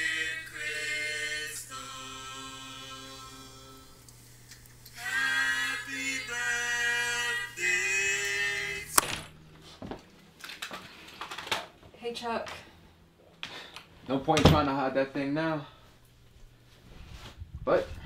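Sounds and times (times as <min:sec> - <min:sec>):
a cappella voices singing: 0:00.0 - 0:04.2, 0:04.9 - 0:09.3.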